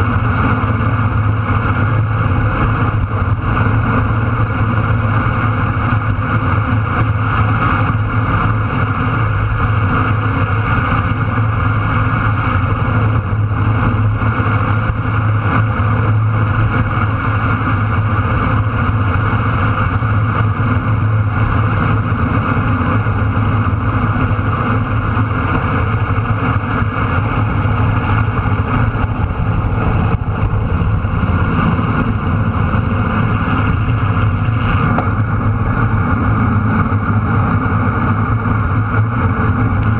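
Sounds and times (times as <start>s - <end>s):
motorcycle engine: 0.0s - 39.9s
wind on microphone: 0.0s - 39.9s.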